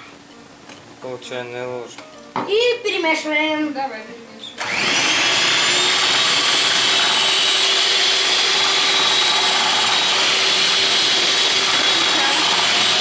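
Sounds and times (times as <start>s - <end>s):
electric hand mixer whirring: 4.6s - 13.0s.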